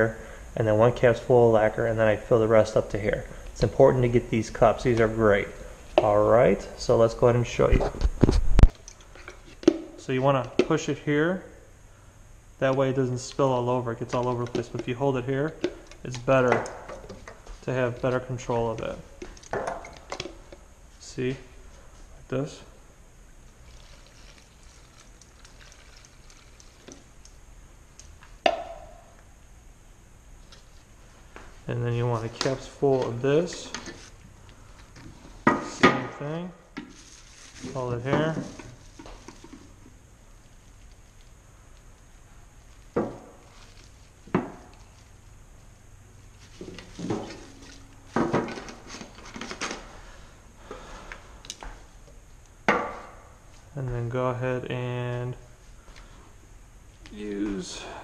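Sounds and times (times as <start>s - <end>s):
plastic and metal containers clattering: 46.5s - 49.9s.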